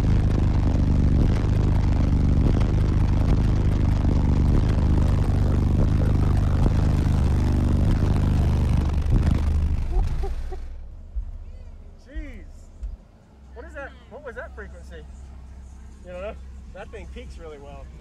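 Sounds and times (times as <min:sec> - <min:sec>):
deep bass through subwoofers: 0:00.0 - 0:13.7.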